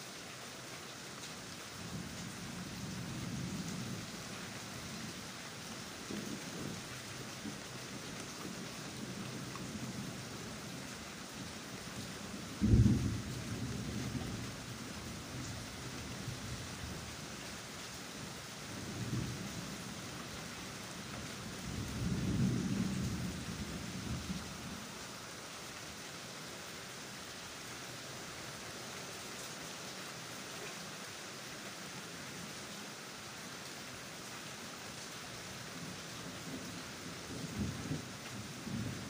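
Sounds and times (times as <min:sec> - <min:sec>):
steady rain: 0:00.0 - 0:39.0
thunder rumbling: 0:12.6 - 0:14.6.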